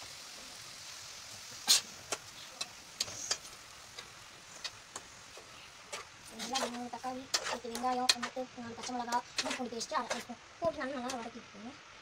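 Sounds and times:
vegetables sizzling in a pot: 0.0 - 12.0
ladle scraping a pot: 5.9 - 10.3.

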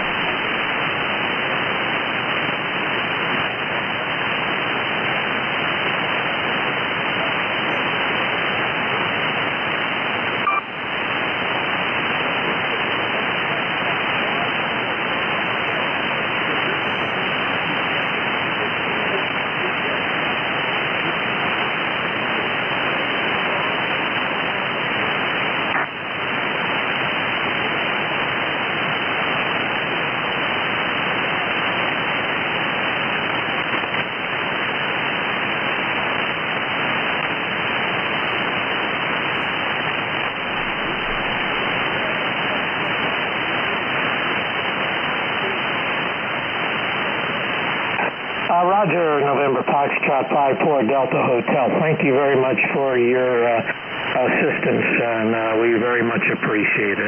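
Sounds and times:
radio static hiss: 0.0 - 57.0.

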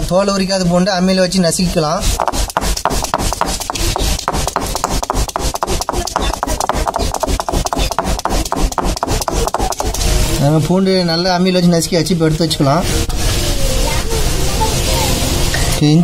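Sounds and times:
stone grinding and rubbing: 2.0 - 10.4
stone roller knocking on stone slab: 2.1 - 10.2.

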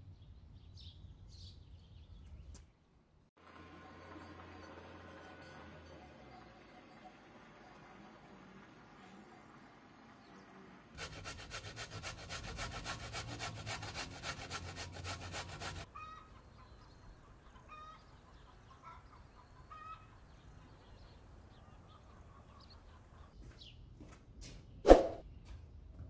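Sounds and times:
carrot grating on metal grater: 11.0 - 15.9.

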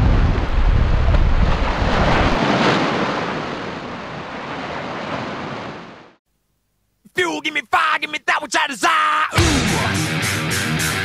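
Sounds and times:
deep rumble: 0.0 - 2.4.

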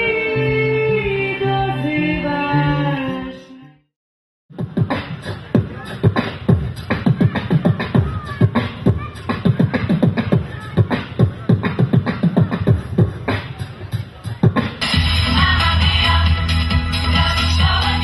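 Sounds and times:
man beatboxing: 4.5 - 14.8.

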